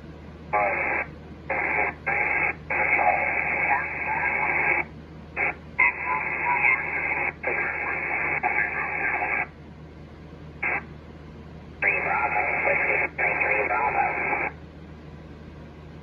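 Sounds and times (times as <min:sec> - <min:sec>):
radio receiver hiss: 0:00.5 - 0:09.5, 0:10.6 - 0:10.9, 0:11.8 - 0:14.6
garbled sideband radio signals: 0:00.6 - 0:09.5, 0:10.6 - 0:10.9, 0:11.8 - 0:14.6.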